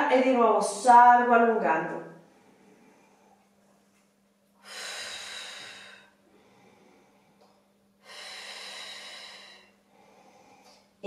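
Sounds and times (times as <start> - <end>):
woman breathing: 2.2 - 11.0.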